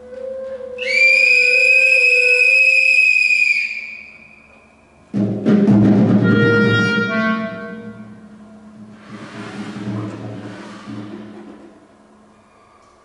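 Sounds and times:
high clarinet note: 0.0s - 4.7s
deep drum hit: 5.1s - 6.6s.

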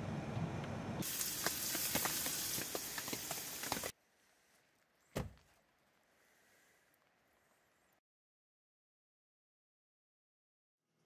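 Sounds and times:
meat sizzling in frying pan: 1.0s - 3.9s
car door shutting: 5.1s - 5.4s.

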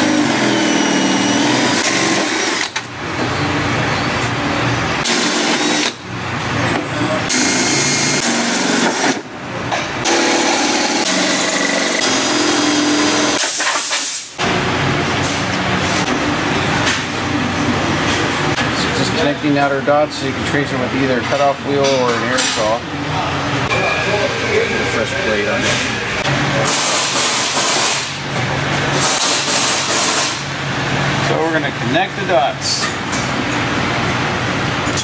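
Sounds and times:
drill cutting sheet metal: 0.0s - 2.8s, 5.0s - 6.0s, 7.3s - 9.2s, 10.0s - 14.3s, 26.7s - 28.2s, 29.0s - 30.4s.

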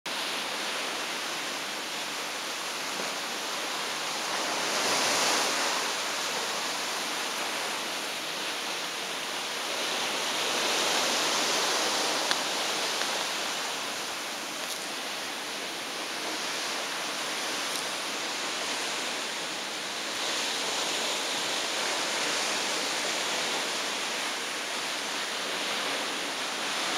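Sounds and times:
seawater rushing along hull: 0.1s - 26.9s.

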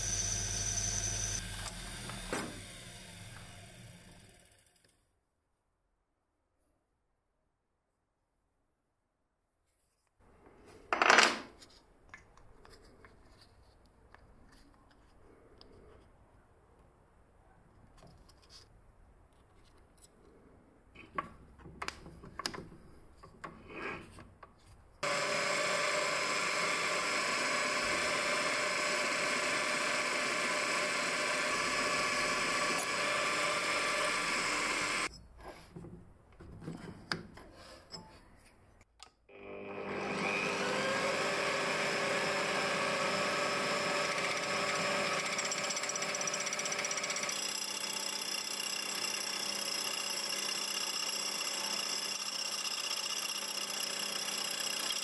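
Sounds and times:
electric drill running: 0.0s - 4.6s, 25.0s - 35.1s, 39.6s - 55.0s.

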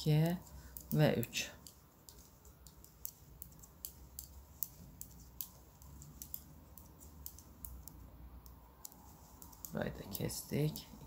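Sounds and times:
knitting needles clicking: 0.0s - 11.0s.

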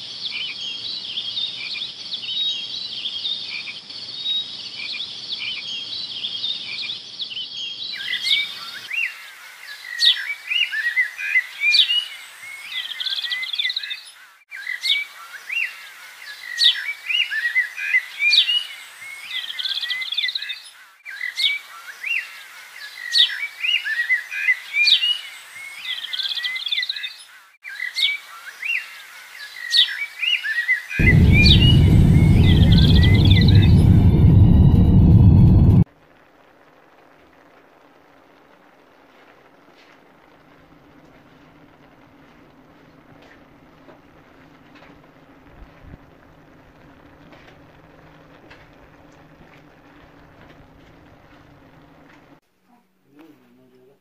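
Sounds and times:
small birds chirping: 0.2s - 34.2s
loud low rumble: 31.0s - 35.9s.

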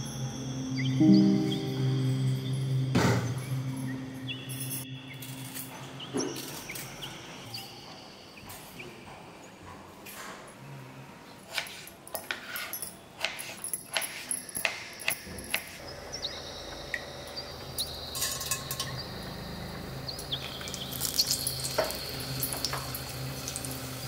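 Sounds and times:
hot oil sizzling and popping: 17.6s - 19.5s, 20.1s - 24.0s.

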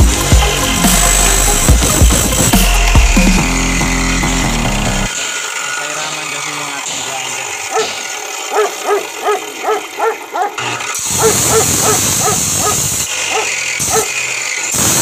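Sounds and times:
dog barking: 7.7s - 14.2s.

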